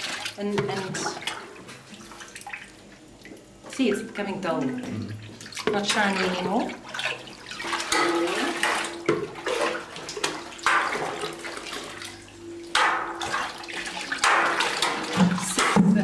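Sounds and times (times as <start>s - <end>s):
liquid splashing and pouring: 4.7s - 15.8s.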